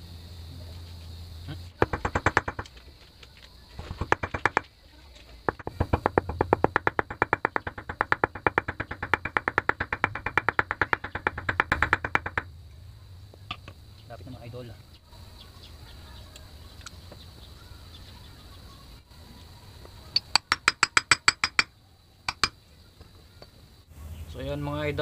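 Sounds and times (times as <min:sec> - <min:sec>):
hammer tapping on metal: 0:01.8 - 0:02.8, 0:03.8 - 0:04.7, 0:05.5 - 0:12.5, 0:20.2 - 0:21.7, 0:22.3 - 0:22.6.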